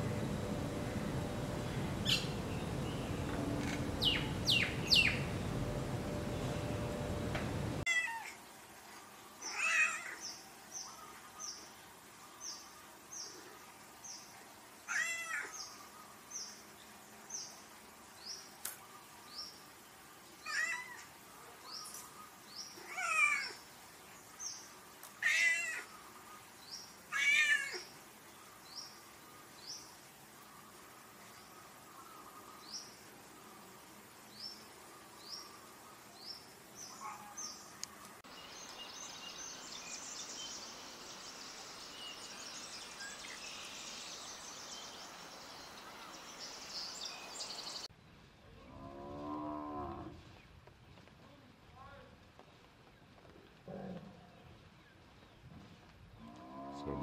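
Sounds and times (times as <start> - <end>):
steady hiss: 0.0 - 14.9, 15.5 - 48.6
bird chirps: 0.7 - 7.3.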